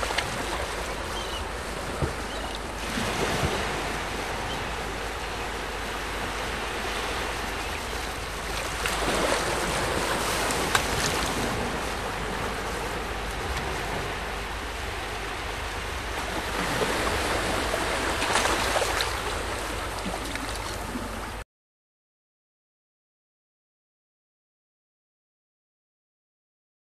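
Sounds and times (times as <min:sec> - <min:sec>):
waves washing in: 0:00.0 - 0:21.4.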